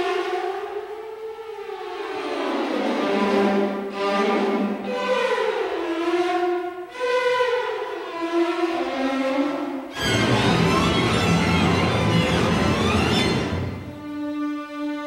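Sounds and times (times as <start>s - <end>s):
sliding string-like tones: 9.9s - 14.5s.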